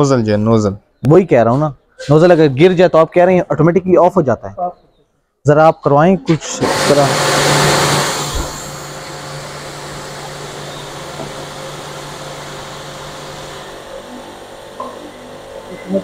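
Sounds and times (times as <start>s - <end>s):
water jet hissing on concrete: 6.6s - 13.7s
pump motor humming: 6.6s - 16.0s.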